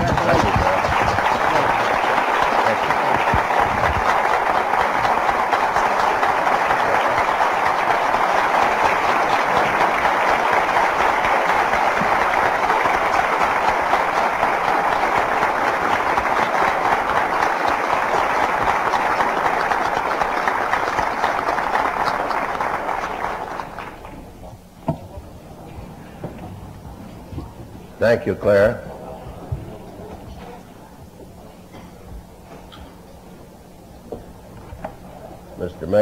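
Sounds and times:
audience applauding: 0.0s - 24.7s.

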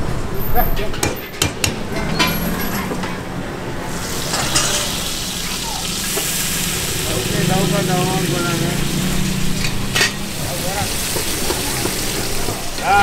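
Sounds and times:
hot oil sizzling: 3.8s - 13.0s
metal spatula scraping wok: 7.9s - 12.8s.

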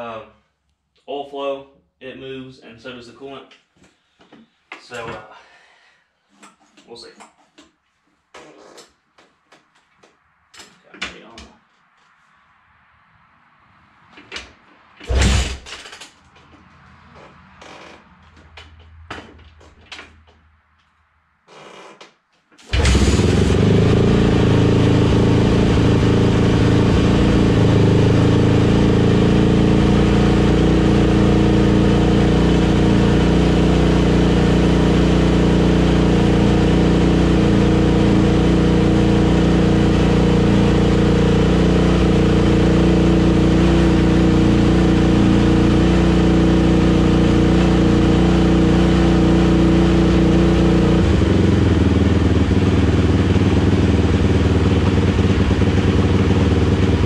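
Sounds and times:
dirt bike engine running: 22.7s - 57.0s.

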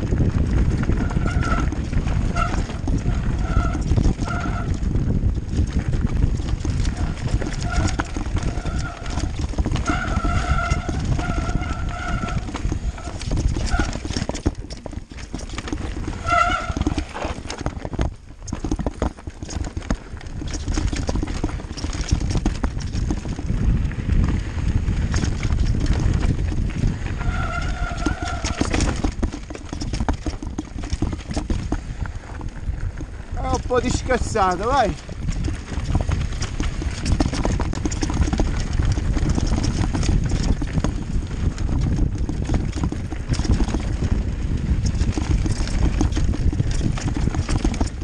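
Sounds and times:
bike rattling over rocks: 0.0s - 48.0s
wind rumble on microphone: 0.0s - 48.0s
disc brakes squealing: 0.9s - 4.8s, 7.0s - 14.1s, 16.1s - 17.4s, 27.1s - 29.1s.

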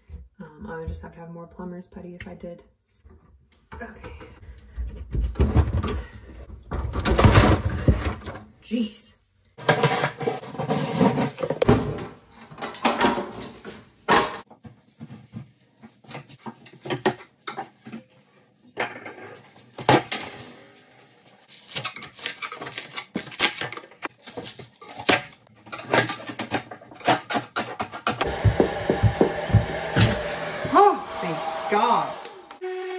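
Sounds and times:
hand tools clattering and scraping: 9.6s - 13.8s.

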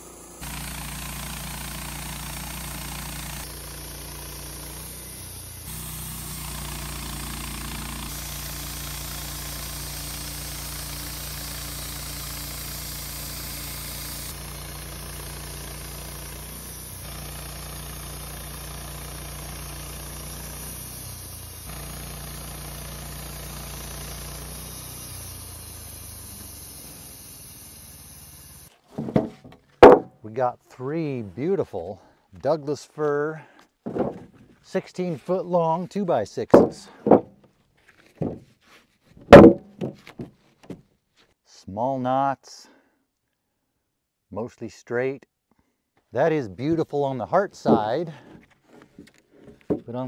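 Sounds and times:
bandsaw mill running: 0.0s - 30.1s, 47.6s - 48.4s.

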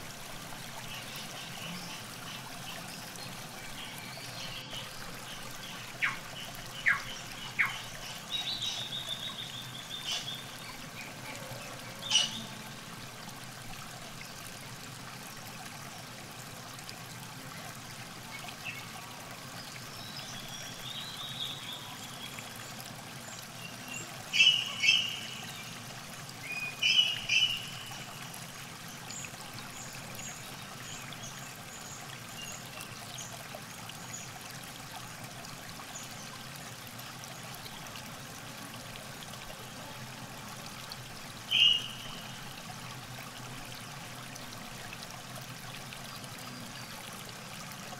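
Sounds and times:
river water trickling: 0.0s - 47.9s
small birds calling: 3.8s - 10.5s, 23.7s - 25.5s, 26.7s - 28.1s, 41.5s - 42.4s.

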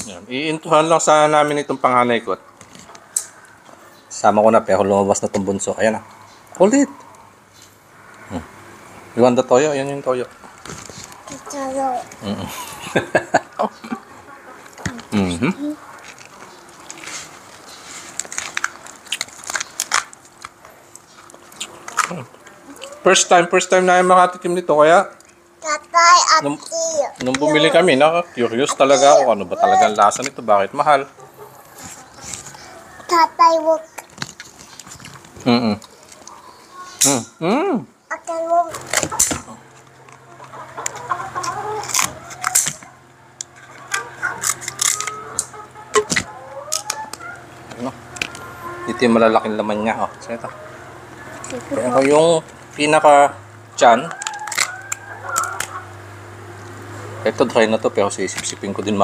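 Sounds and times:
chickens clucking: 1.1s - 37.4s, 38.0s - 59.0s
crab shell cracking: 18.2s - 20.6s, 40.0s - 47.1s, 54.1s - 55.9s.

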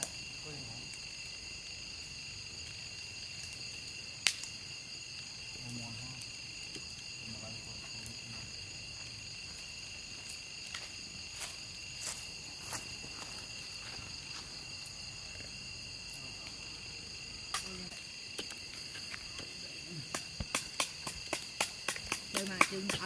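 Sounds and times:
insect chorus trilling: 0.0s - 23.0s.

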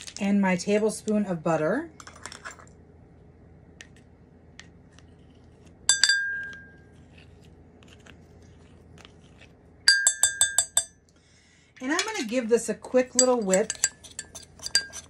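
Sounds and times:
plastic spoon clinking on mug: 5.9s - 6.8s, 9.9s - 11.0s, 13.1s - 15.0s.

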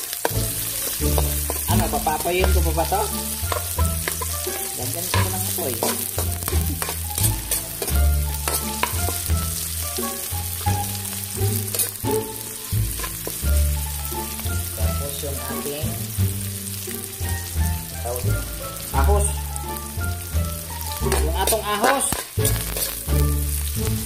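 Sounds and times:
metal spatula scraping a pan: 0.0s - 14.4s, 20.5s - 23.8s
background music: 0.0s - 24.0s
onions sizzling in hot oil: 0.0s - 24.0s.

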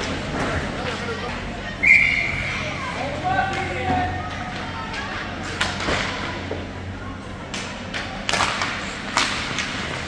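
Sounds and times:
murmur of spectators: 0.0s - 10.0s
hockey sticks and puck clacking: 3.3s - 6.7s, 7.4s - 10.0s.

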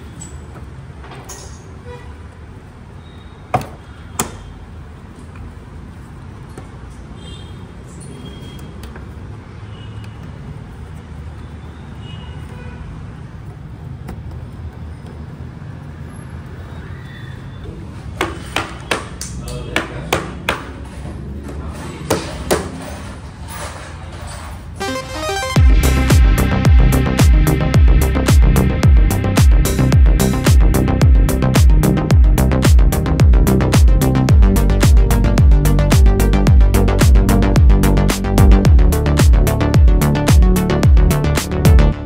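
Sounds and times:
steady low hum: 25.6s - 42.0s.

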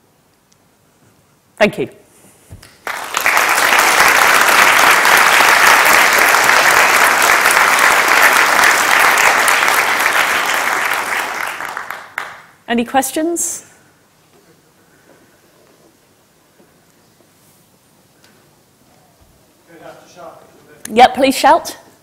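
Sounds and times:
audience applauding: 2.6s - 12.6s.

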